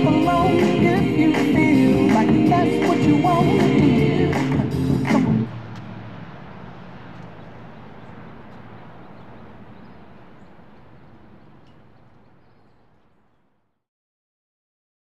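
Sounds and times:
faint distant sounds: 2.8 - 13.8.

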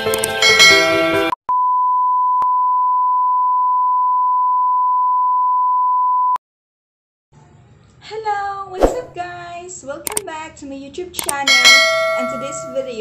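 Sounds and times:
small clicks: 0.0 - 0.4, 10.0 - 10.2, 11.2 - 11.4
steady test tone beep: 1.5 - 6.4.

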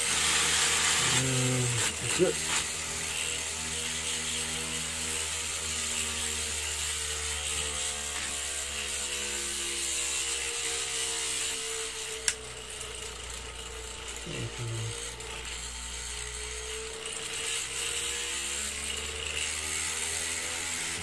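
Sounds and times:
flywheel rotor whirring: 11.4 - 21.0
sharp click: 12.2 - 12.4.

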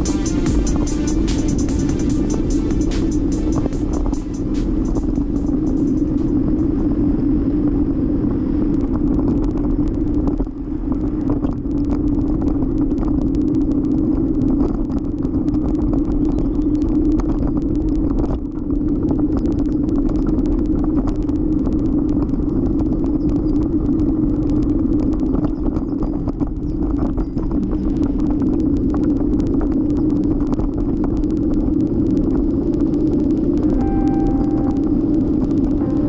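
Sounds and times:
wind rush: 0.0 - 15.8
continuous hum: 0.0 - 36.0.

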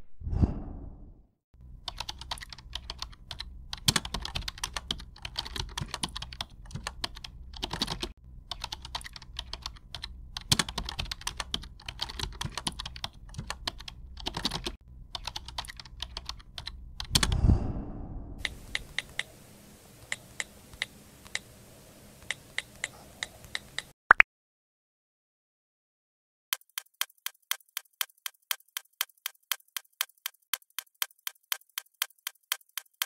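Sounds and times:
steady low hum: 1.6 - 23.9
computer keyboard typing: 1.8 - 17.4, 22.2 - 23.9, 26.6 - 33.0.

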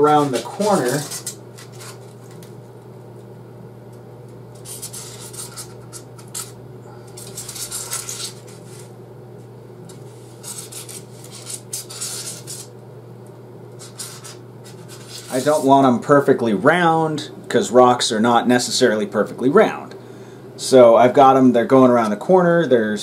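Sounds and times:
steady low hum: 0.0 - 23.0
marker scratching on foam: 0.1 - 2.0, 10.3 - 12.7, 13.8 - 15.7.

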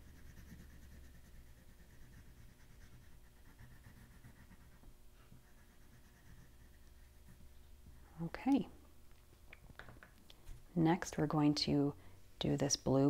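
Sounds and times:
pastel scratching on paper: 0.0 - 7.4
low room hum: 0.0 - 13.0.

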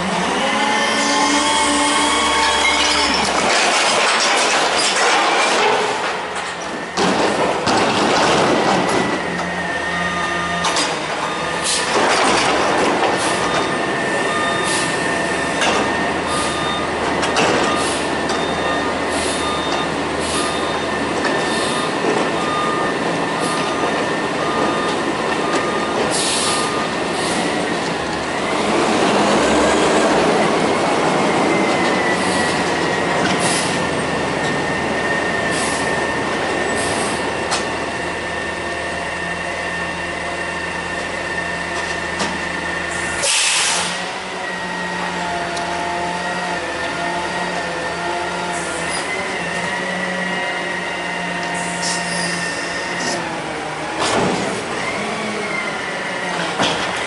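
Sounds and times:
hydraulic whine: 0.0 - 3.5, 8.5 - 57.0
metal clanks and squeals: 0.3 - 28.6, 48.5 - 53.3
beeping alarm: 8.8 - 11.9, 13.2 - 28.8.

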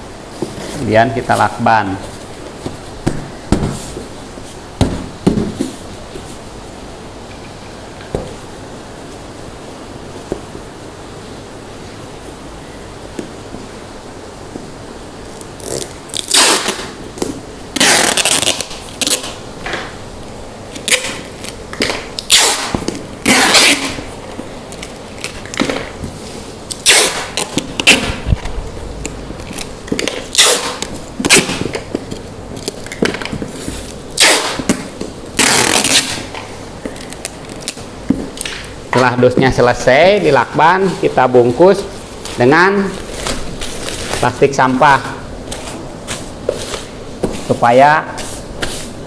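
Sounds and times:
packing tape pulled off roll: 15.2 - 20.0, 20.7 - 38.7.

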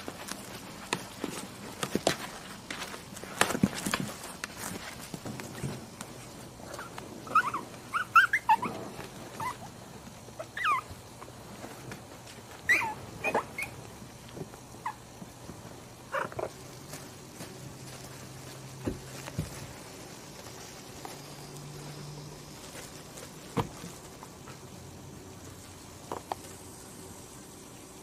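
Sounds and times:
faint steady hum: 0.0 - 28.0
puppies whimpering: 6.7 - 9.7, 10.4 - 11.0, 12.7 - 13.8.

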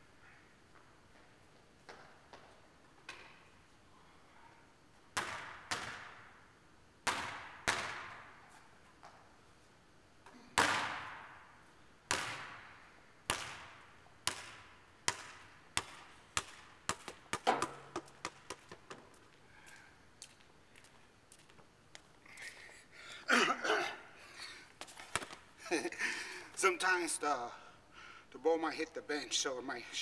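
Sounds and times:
basketball bouncing on gym floor: 5.2 - 6.2, 13.3 - 19.1.

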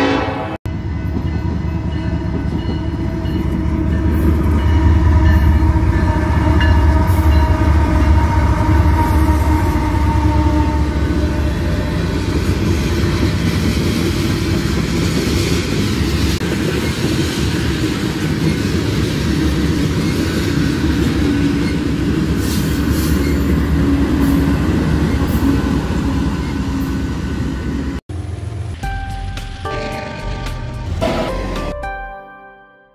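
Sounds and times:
train wheels rumbling and clacking: 0.7 - 31.8.

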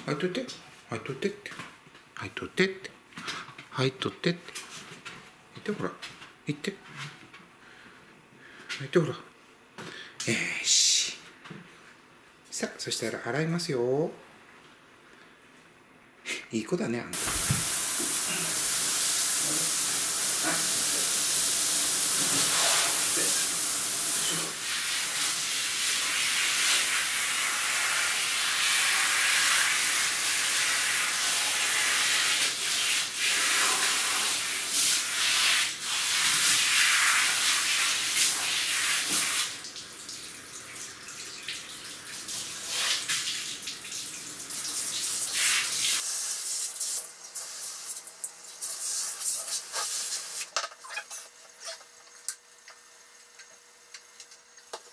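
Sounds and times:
shower head spraying water: 17.2 - 39.7, 42.2 - 43.7, 44.4 - 50.5.

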